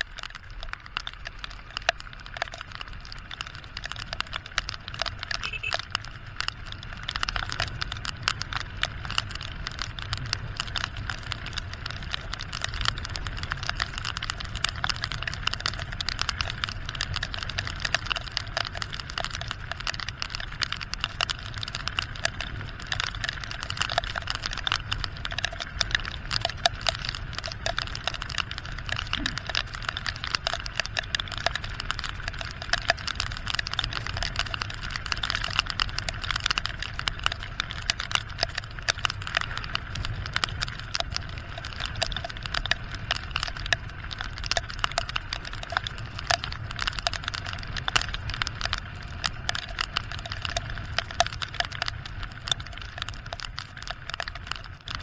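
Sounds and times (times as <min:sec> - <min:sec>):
motorcycle running: 0:00.0 - 0:55.0
raindrops ticking on camera: 0:00.0 - 0:55.0
wind: 0:00.0 - 0:55.0.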